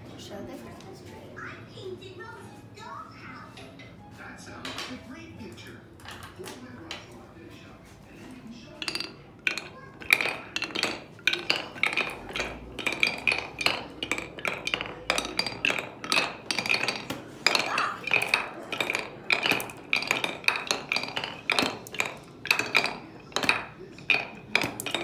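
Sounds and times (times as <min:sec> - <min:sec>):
marble clinking on wooden run: 0:08.7 - 0:25.0.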